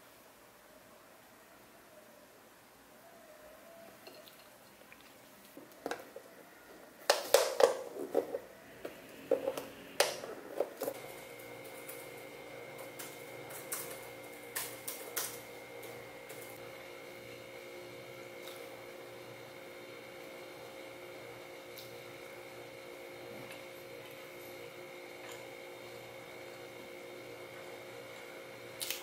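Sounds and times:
steady hum: 8.0s - 29.0s.

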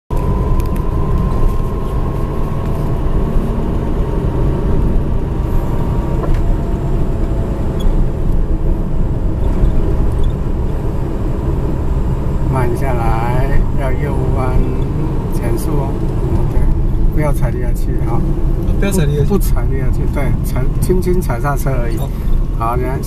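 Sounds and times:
car engine and tyre rumble: 0.1s - 23.0s.

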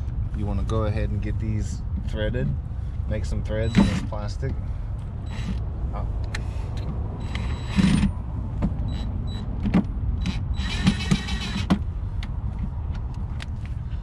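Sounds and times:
drill motor whining: 5.3s - 5.6s, 10.2s - 11.7s.

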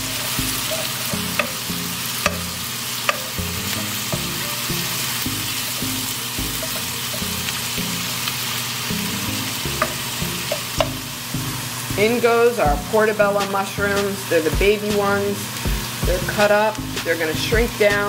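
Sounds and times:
vegetables sizzling in oil: 0.0s - 18.0s
wooden spoon clicking on pan: 0.6s - 3.4s, 9.8s - 11.0s.

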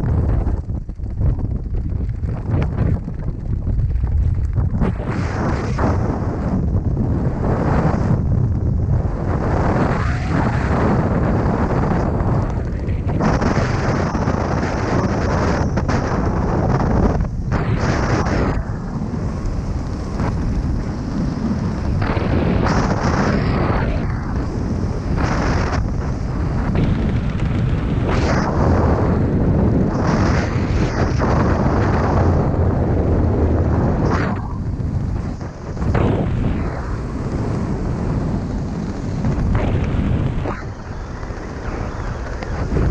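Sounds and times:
wind buffeting microphone: 0.0s - 42.9s.

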